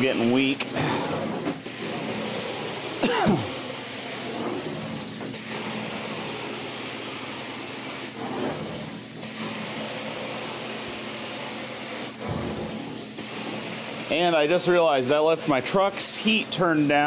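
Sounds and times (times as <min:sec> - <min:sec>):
carpet-cleaning wand hissing: 0:00.6 - 0:14.4.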